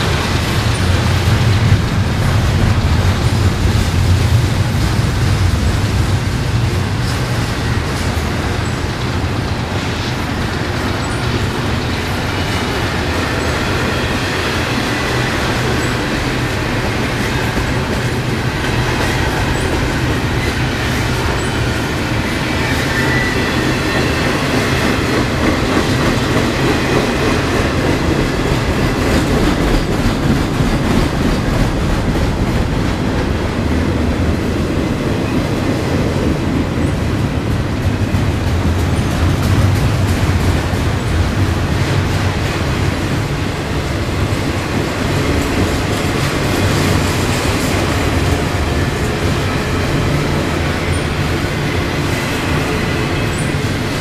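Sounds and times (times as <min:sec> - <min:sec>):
train wheels rumbling and clattering: 0:00.0 - 0:54.0
high wheel squeal: 0:19.4 - 0:24.5.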